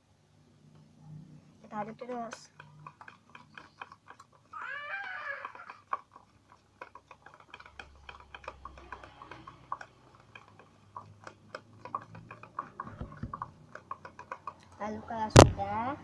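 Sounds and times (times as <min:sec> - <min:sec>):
spoon stirring slime: 0:01.5 - 0:16.0.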